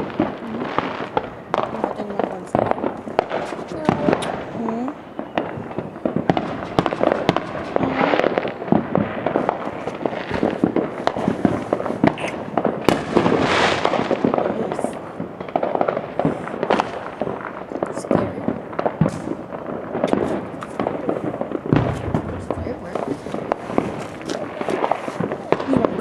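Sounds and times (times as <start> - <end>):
fireworks cracking and popping: 0.0 - 26.0.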